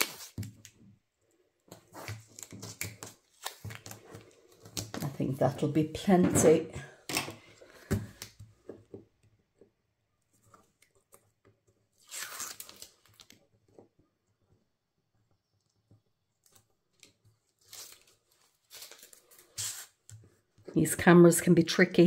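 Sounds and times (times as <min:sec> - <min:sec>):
tape backing paper tearing: 0:00.0 - 0:00.6, 0:12.0 - 0:13.4, 0:17.6 - 0:20.0
paper rustles and taps: 0:01.7 - 0:05.1.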